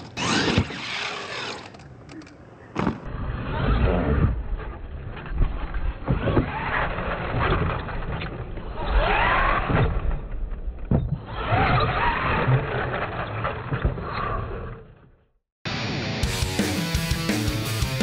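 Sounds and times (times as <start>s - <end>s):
toy truck motor whining: 0.0s - 1.8s.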